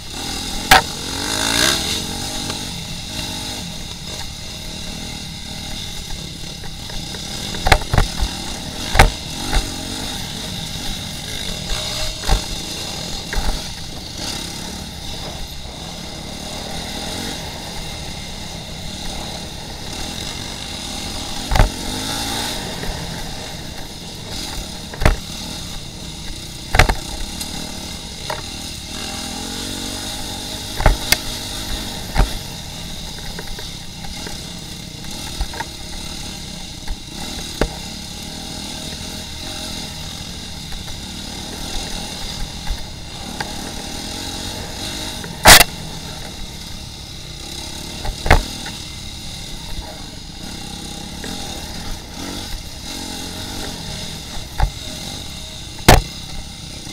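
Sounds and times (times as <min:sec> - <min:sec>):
dirt bike engine running: 0:00.0 - 0:56.9
sharp knocks: 0:21.3 - 0:21.9, 0:26.7 - 0:27.3, 0:48.0 - 0:48.8, 0:55.8 - 0:56.1.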